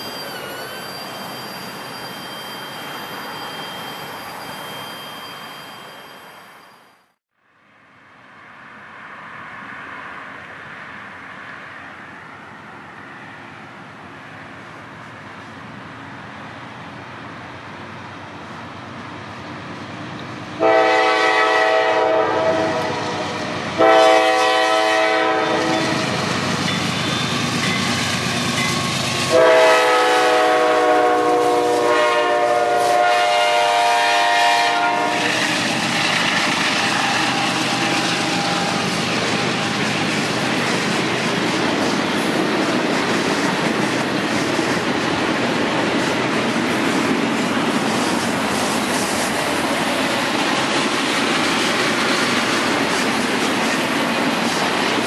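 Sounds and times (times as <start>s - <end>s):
diesel locomotive engine rumble: 8.7s - 55.0s
locomotive air horn blasts: 20.6s - 26.2s, 29.3s - 35.4s.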